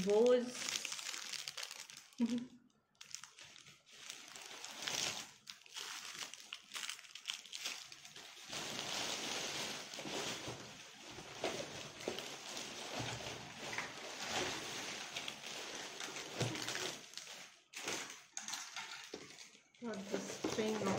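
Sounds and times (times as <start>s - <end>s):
plastic wrapping crinkling: 0.0s - 20.9s
plastic carrier bag rustling: 0.1s - 2.4s, 3.0s - 20.9s.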